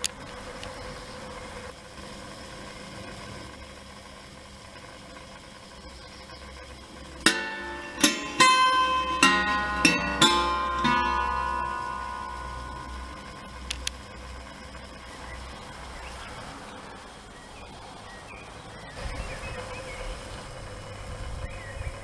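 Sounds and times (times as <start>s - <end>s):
faint steady hum: 0.0s - 22.0s
plucked strings ringing: 7.2s - 14.8s.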